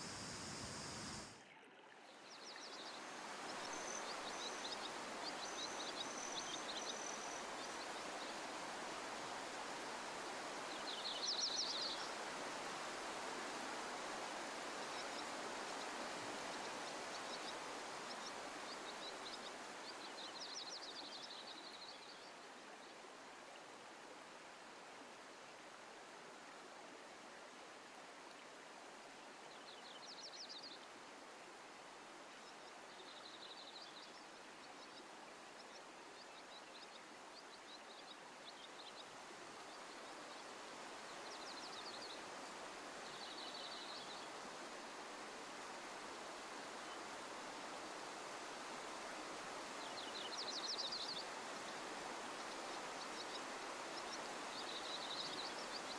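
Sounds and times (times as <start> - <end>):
birds chirping: 0.0 - 1.3.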